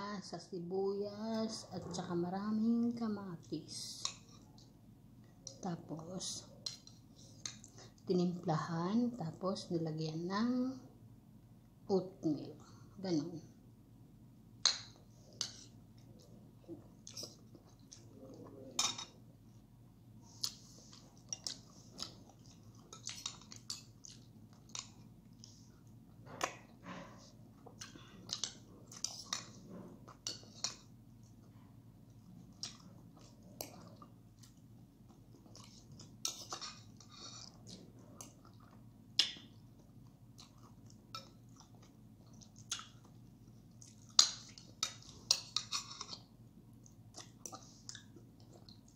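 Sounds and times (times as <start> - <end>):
person chewing food: 6.5 - 8.1, 14.6 - 48.9.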